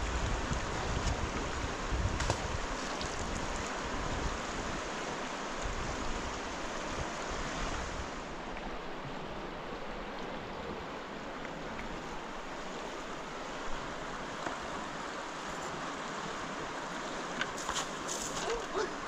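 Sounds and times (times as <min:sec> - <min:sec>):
wind on microphone: 0:00.0 - 0:08.2.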